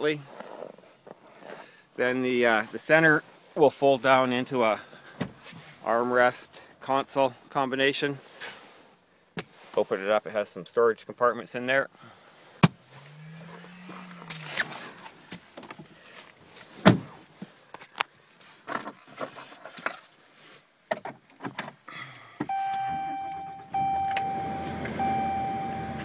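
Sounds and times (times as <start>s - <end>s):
dashboard warning chime: 22.5s - 26.0s.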